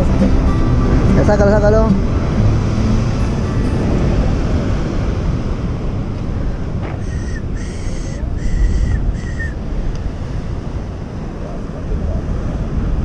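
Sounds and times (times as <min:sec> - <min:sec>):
surf rumbling: 0:00.0 - 0:13.0
wind buffeting microphone: 0:00.0 - 0:13.0
short high-pitched calls: 0:06.9 - 0:09.6.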